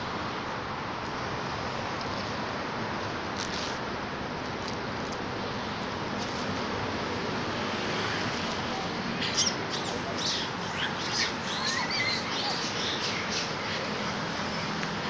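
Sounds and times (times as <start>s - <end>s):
steady background hiss: 0.0s - 15.0s
small birds chirping: 8.5s - 15.0s.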